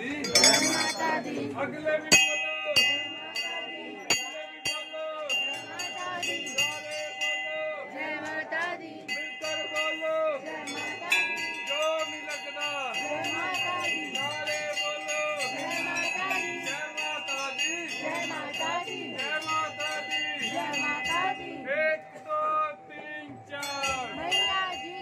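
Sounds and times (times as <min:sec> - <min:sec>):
temple bells ringing: 0:00.0 - 0:01.4, 0:02.1 - 0:25.0
crowd voices: 0:00.0 - 0:06.9, 0:07.8 - 0:25.0.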